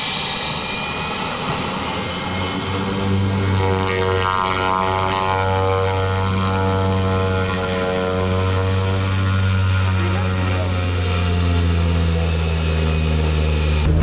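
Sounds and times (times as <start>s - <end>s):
propeller plane engine drone: 0.0s - 14.0s.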